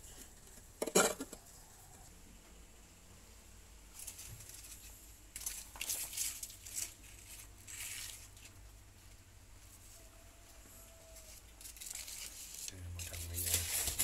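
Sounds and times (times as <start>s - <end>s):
dry leaves rustling and crinkling: 3.9s - 10.1s, 11.0s - 14.0s.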